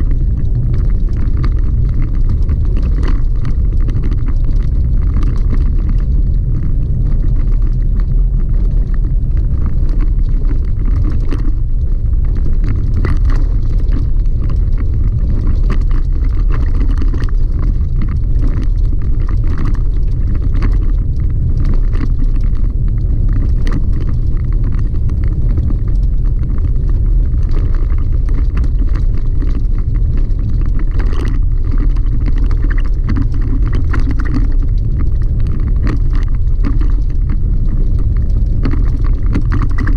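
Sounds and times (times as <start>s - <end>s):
small clicks and rattles: 0.0s - 39.9s.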